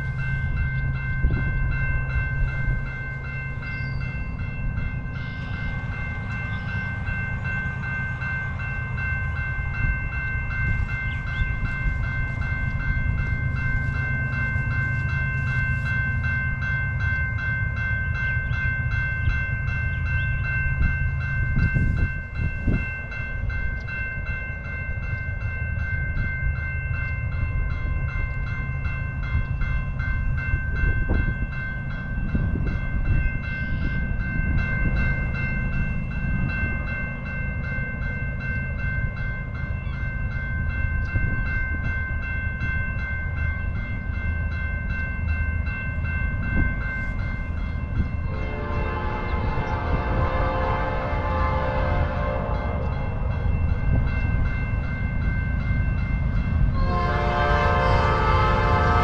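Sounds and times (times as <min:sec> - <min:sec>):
train rumbling: 0:00.0 - 0:59.0.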